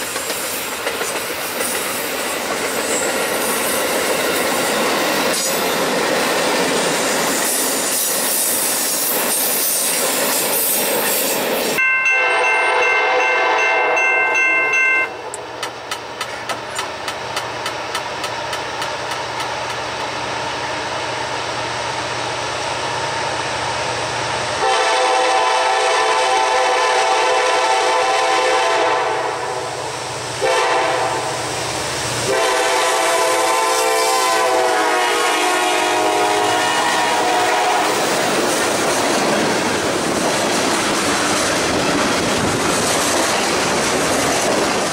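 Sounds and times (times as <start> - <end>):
train wheel clicks: 0.0 - 12.1, 14.0 - 20.2, 37.9 - 44.9
diesel locomotive engine drone: 0.0 - 44.9
train wheels rumbling on rails: 0.0 - 44.9
locomotive air horn: 12.0 - 14.1, 24.6 - 29.8, 30.4 - 31.4, 32.2 - 38.1.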